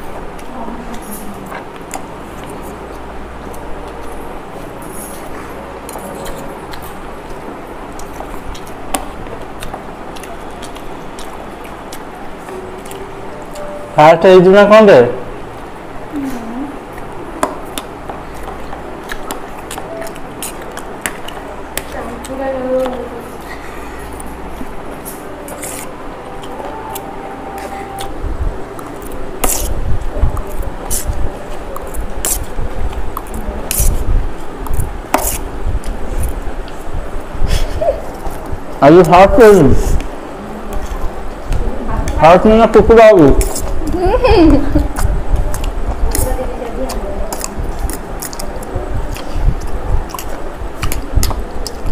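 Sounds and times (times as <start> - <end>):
steady background noise: 0.0 - 51.9
slurping and chewing: 3.5 - 13.7, 16.9 - 21.9, 46.9 - 51.9.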